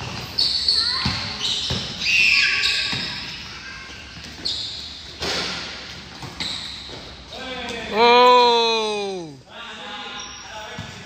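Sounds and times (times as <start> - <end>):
sneaker squeaks: 0.0 - 7.4, 10.1 - 11.0.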